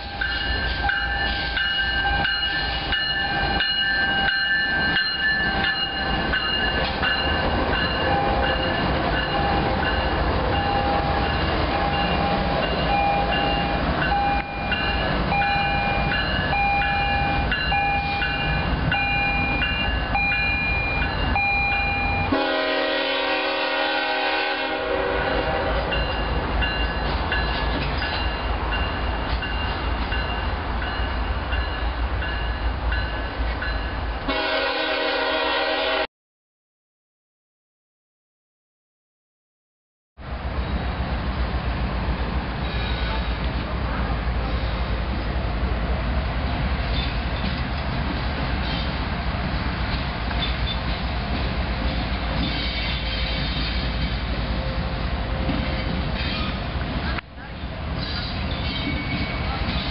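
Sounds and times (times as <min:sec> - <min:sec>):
train wheels on rails: 0:00.0 - 0:35.0, 0:40.2 - 0:59.9
diesel locomotive running: 0:00.0 - 0:36.0, 0:40.2 - 0:59.9
train horn sounding: 0:22.3 - 0:26.0, 0:34.3 - 0:36.1.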